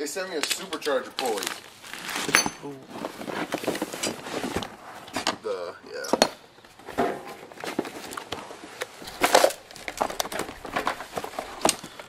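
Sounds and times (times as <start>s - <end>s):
plastic wrap crinkling: 0.6s - 4.8s, 9.0s - 12.0s
cardboard box rustling: 1.2s - 4.8s, 6.8s - 12.0s.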